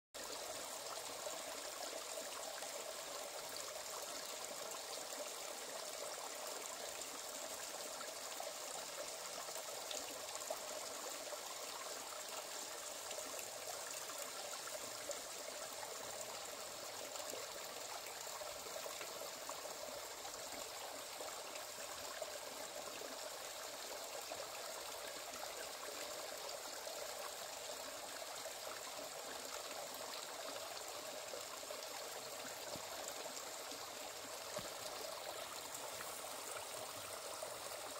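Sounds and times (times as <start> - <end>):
stream babbling over rocks: 0.2 - 37.9.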